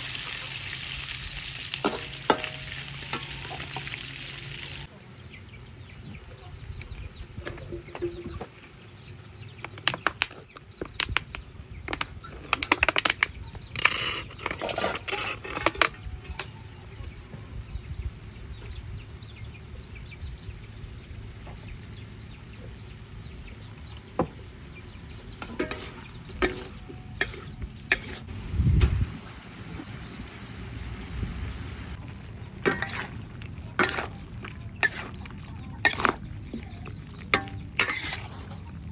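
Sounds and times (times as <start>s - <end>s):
chickens clucking: 1.7s - 11.2s, 31.9s - 38.9s
metal spatula scraping wok: 13.8s - 16.0s, 25.4s - 28.3s, 32.5s - 36.6s, 37.3s - 38.8s.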